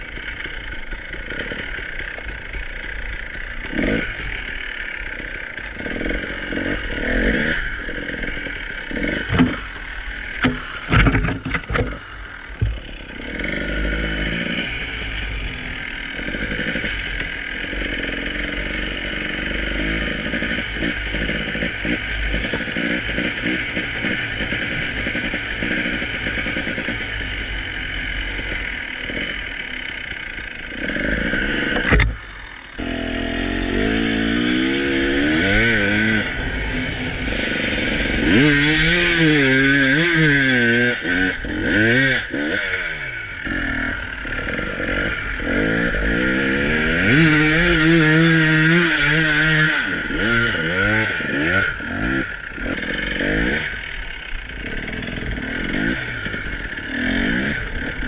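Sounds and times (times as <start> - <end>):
dirt bike engine revving: 0.0 - 58.0
clattering and scraping over rough ground: 8.9 - 13.2, 31.2 - 32.4.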